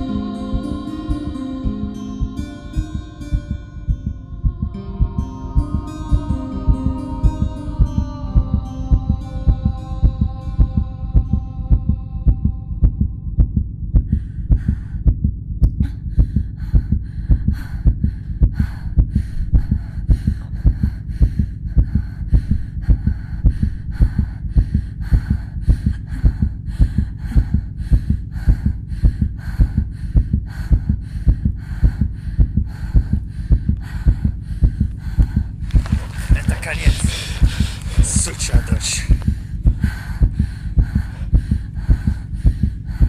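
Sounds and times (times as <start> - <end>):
held musical chord: 0.0 - 12.2
heartbeat: 0.0 - 43.0.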